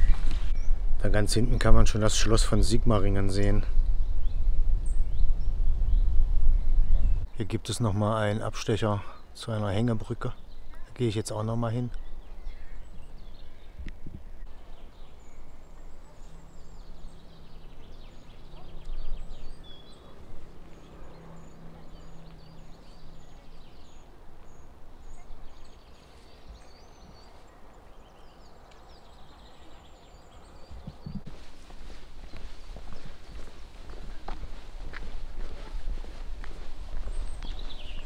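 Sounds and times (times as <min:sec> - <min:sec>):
wind on microphone: 0:00.0 - 0:07.4, 0:12.0 - 0:14.5, 0:30.6 - 0:38.0
footsteps on woodland path: 0:14.6 - 0:29.5, 0:30.5 - 0:38.0.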